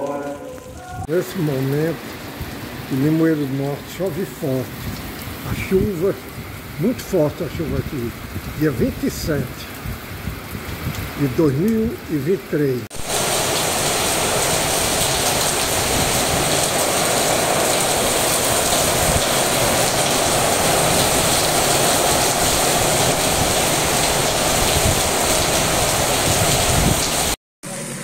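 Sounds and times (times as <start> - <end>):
rain pouring: 0.0 - 28.0.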